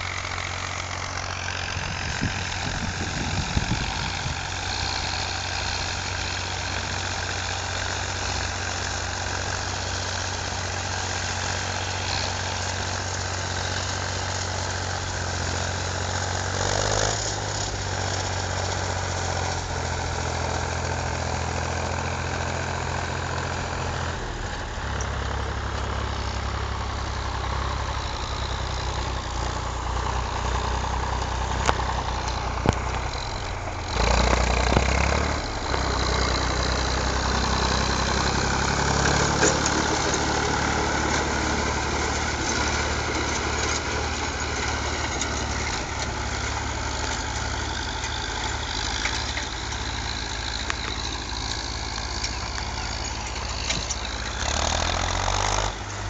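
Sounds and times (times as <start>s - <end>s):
tractor diesel engine idling: 0.0s - 56.0s.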